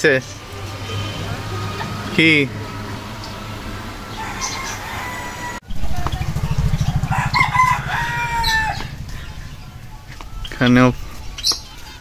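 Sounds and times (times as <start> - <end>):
loud low rumble: 0.0 - 12.0
rooster crowing: 0.6 - 5.6, 6.4 - 10.4.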